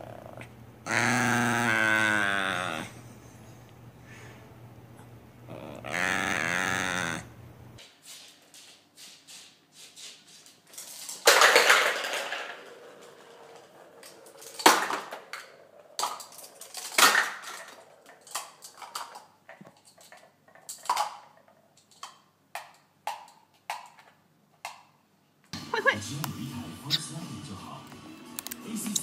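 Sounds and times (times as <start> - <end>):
plastic cups clattering: 10.8 - 24.8.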